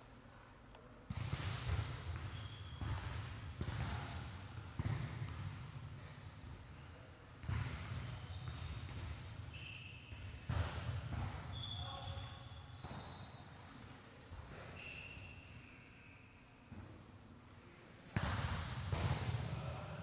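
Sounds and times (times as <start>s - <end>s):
short high squeaks: 14.7s - 16.4s.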